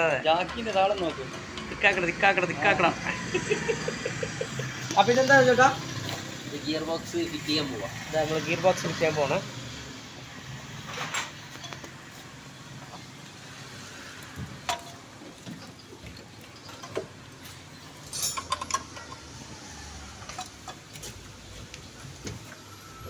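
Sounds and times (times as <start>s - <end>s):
metallic clicks of tools and parts: 18.0s - 19.4s.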